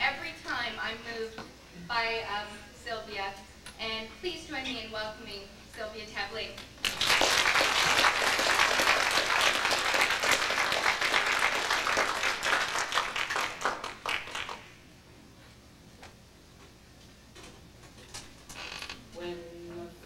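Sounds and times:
audience applauding: 6.8s - 14.8s.

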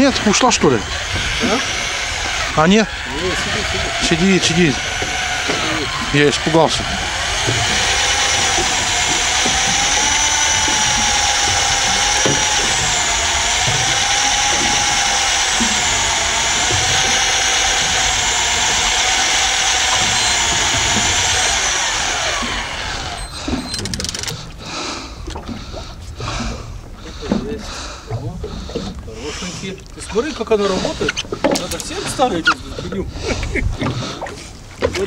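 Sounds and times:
fishing reel whining: 0.0s - 24.7s.

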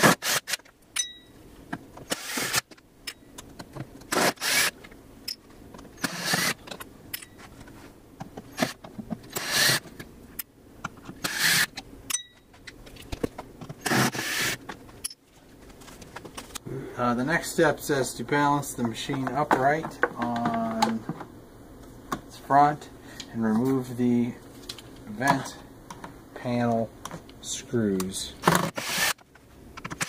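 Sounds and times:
cordless drill running: 2.1s - 2.6s, 4.1s - 4.7s, 6.0s - 6.6s, 9.4s - 9.8s, 13.9s - 14.6s, 28.5s - 29.2s.

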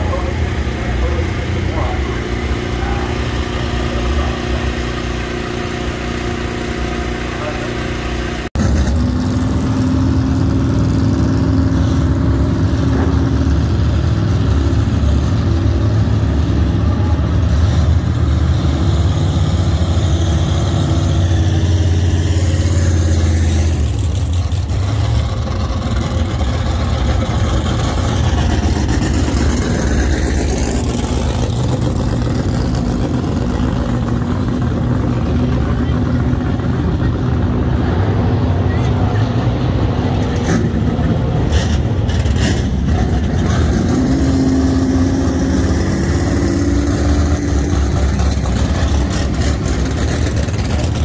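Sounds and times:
racing engines idling: 0.0s - 51.0s.

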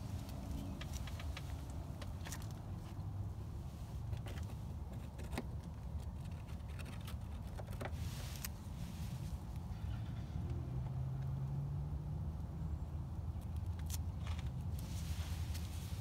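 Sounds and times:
small clicks and rustles: 0.0s - 3.1s, 4.0s - 9.6s, 13.4s - 16.0s
hissing rustle: 14.7s - 16.0s.

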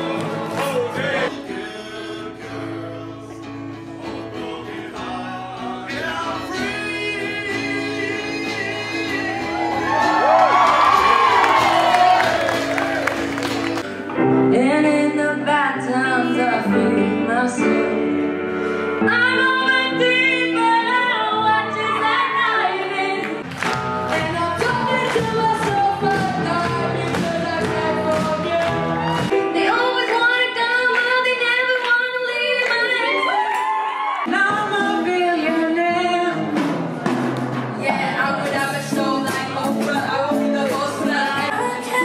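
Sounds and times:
person singing with band: 0.0s - 12.8s, 37.8s - 42.0s.

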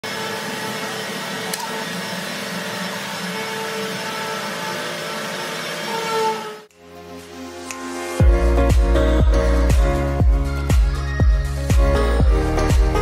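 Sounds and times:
workshop machinery droning: 0.0s - 6.8s.

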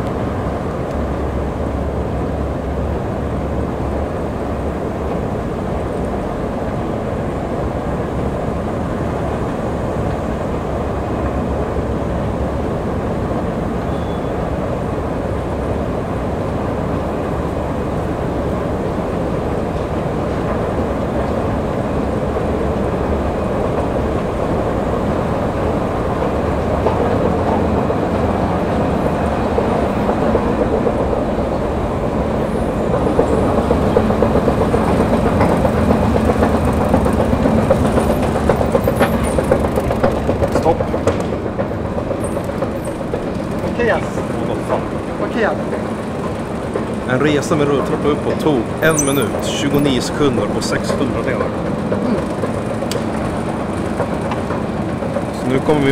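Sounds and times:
escalator rumbling: 14.9s - 55.9s.

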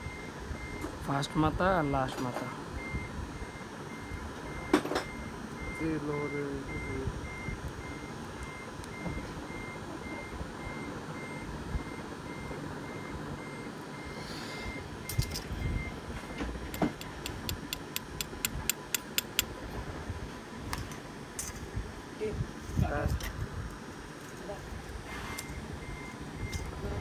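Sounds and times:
sharp clicks: 16.7s - 19.5s.

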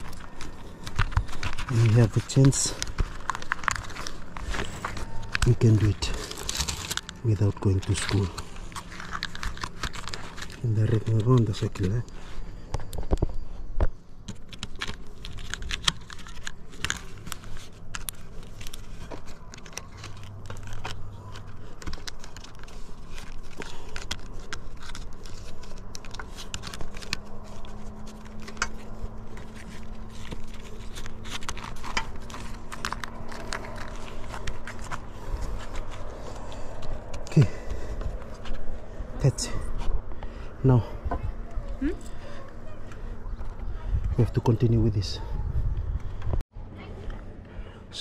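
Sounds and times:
metal foil crinkling and crackling: 0.0s - 12.4s, 14.4s - 38.7s.

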